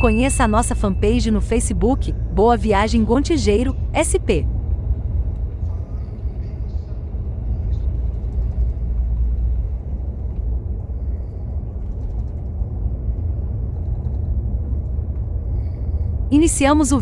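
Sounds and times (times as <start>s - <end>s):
engine and road noise rumble: 1.8s - 16.8s.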